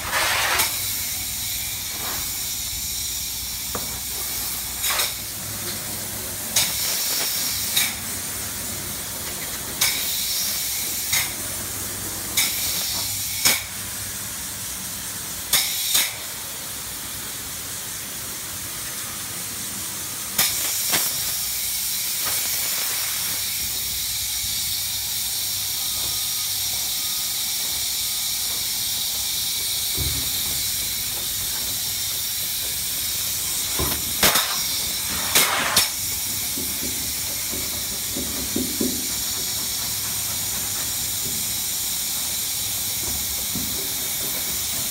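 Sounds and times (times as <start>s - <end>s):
spray foam gun hissing: 0.0s - 9.1s, 19.0s - 44.9s.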